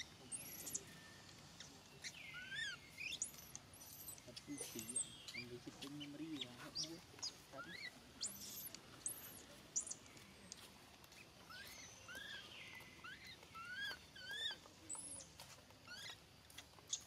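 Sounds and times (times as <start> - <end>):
baby monkey squealing: 0.0 - 0.9, 2.0 - 5.4, 6.7 - 10.0, 11.5 - 12.4, 13.0 - 15.3, 15.9 - 16.2.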